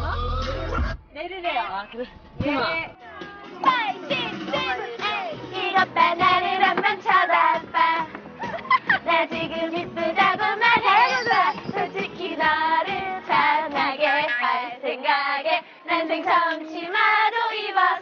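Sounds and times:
young women singing together: 0:03.6 - 0:18.0.

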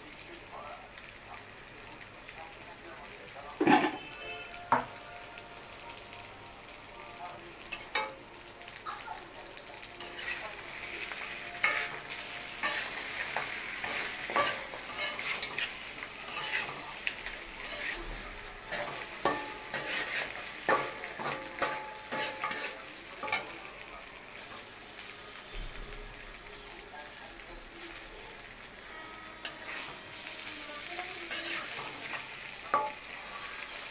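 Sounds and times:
meat sizzling in hot oil: 0:00.0 - 0:33.9
spatula scraping pan: 0:10.0 - 0:23.5, 0:29.4 - 0:30.4, 0:31.2 - 0:33.9.

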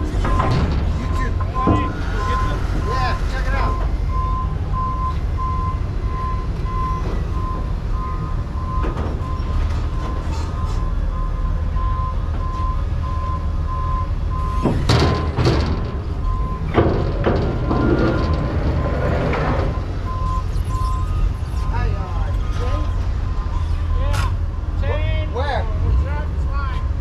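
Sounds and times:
loud metal clanks and knocks: 0:00.0 - 0:04.0, 0:08.7 - 0:10.8, 0:14.4 - 0:20.2
reversing alarm beeping: 0:00.0 - 0:18.6, 0:19.6 - 0:24.2.

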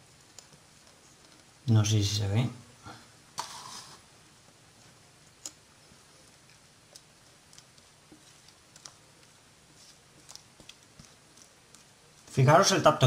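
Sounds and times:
faint clicks and taps: 0:00.0 - 0:01.6, 0:04.5 - 0:12.4.

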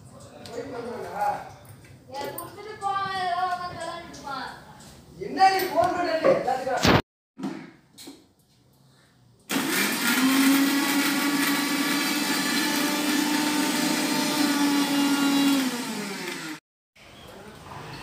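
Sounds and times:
mixer grinder motor running: 0:09.5 - 0:16.6.

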